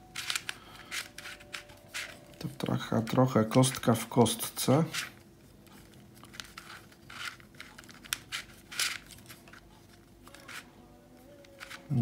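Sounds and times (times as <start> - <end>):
plastic puzzle cube turning: 0.0 - 2.7, 4.9 - 12.0.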